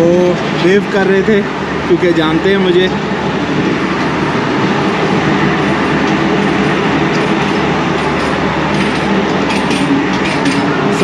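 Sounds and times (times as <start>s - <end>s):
train wheels on rails: 0.0s - 11.0s.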